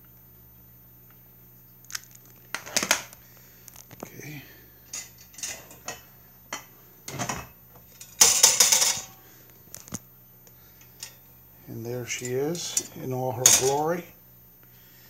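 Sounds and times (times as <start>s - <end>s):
metal heater parts clanking: 4.9s - 9.2s, 10.8s - 11.2s, 11.8s - 14.0s.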